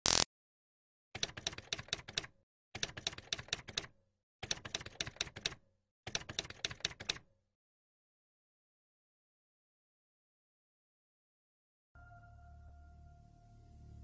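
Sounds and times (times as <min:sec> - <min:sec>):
typewriter keys clacking: 0:01.2 - 0:07.2.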